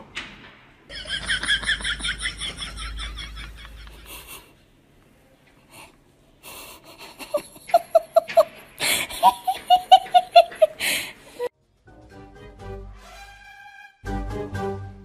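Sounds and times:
person laughing: 0.9 - 4.5, 6.5 - 11.5
breathy gasps: 8.8 - 9.2, 10.8 - 11.4.

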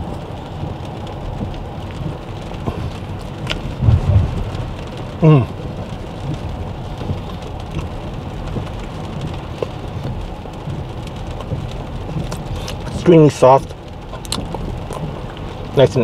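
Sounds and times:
rain pattering on glass roof: 0.0 - 16.0
road noise: 0.0 - 16.0
low thumps: 2.6 - 5.5
man humming: 5.2 - 5.6.

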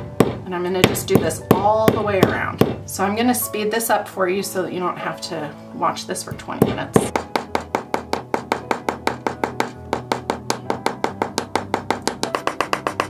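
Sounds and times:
background music: 0.0 - 13.0
hammer tapping metal: 6.6 - 13.0.

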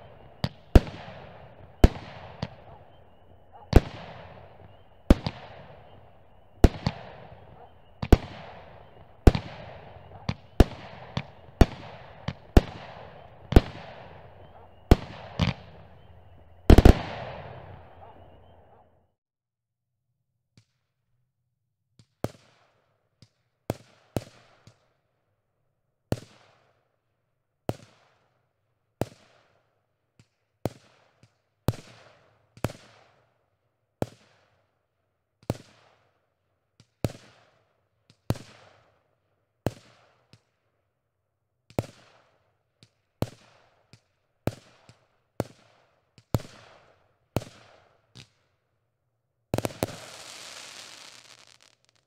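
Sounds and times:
fireworks dense rushing noise: 0.0 - 18.8, 49.6 - 52.0
fireworks bangs with echo: 0.0 - 18.9, 44.5 - 48.3, 49.5 - 52.0.

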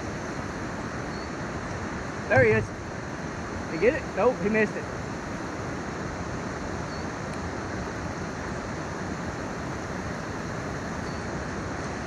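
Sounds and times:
creek water rushing: 0.0 - 12.0.

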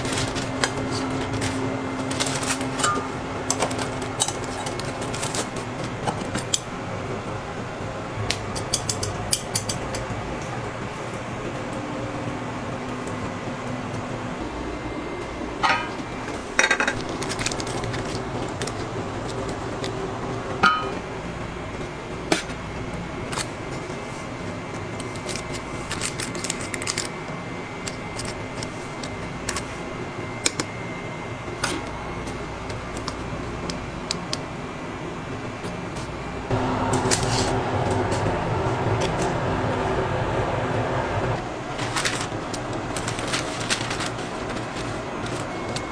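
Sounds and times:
ventilation hum: 0.0 - 45.9
metal baking pans clinking: 15.6 - 16.0, 20.6 - 21.0.

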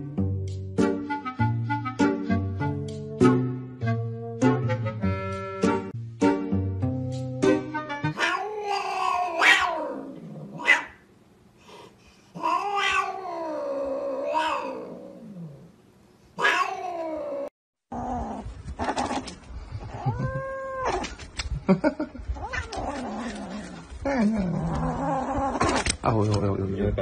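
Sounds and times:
cat yowling: 8.1 - 11.0, 12.4 - 15.6, 16.4 - 17.5, 19.9 - 21.1, 22.4 - 23.5
rustling and clicking: 18.5 - 19.6, 20.9 - 26.5.

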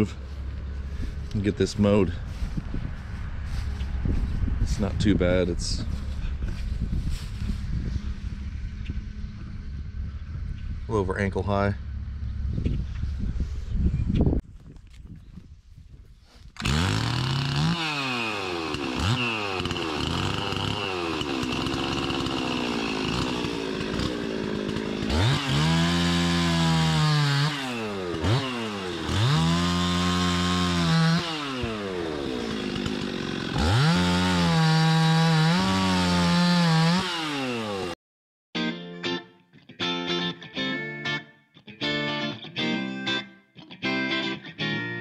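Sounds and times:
chainsaw revving and cutting: 16.6 - 38.0.

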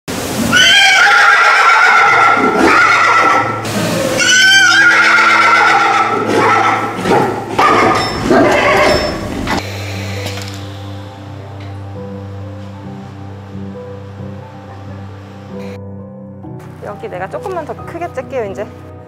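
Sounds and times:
foal whinnying: 0.5 - 9.4.

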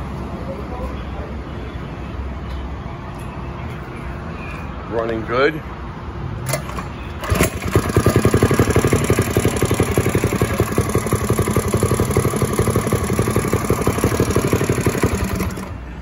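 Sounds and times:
small engine running: 7.2 - 15.8.

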